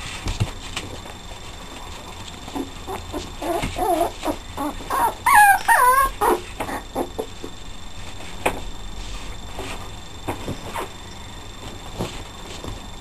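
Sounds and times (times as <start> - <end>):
puppies whining yelps: 2.5 - 7.3
puppies yipping: 2.5 - 7.3.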